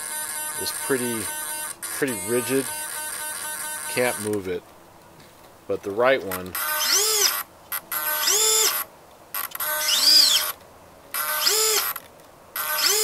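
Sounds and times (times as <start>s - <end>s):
servo whirring: 0.0s - 4.4s, 6.3s - 13.0s.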